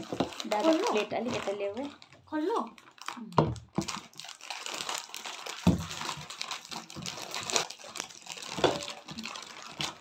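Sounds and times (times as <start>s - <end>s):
plastic packets crinkling: 0.0s - 10.0s
cartons knocking on table: 5.6s - 5.9s.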